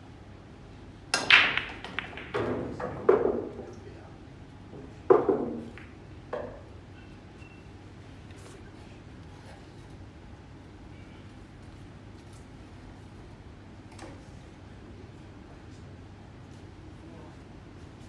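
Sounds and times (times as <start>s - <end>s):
cue ball smashing into racked balls: 1.1s - 3.7s, 4.8s - 6.7s
pool balls clacking: 1.1s - 3.9s, 4.7s - 6.8s.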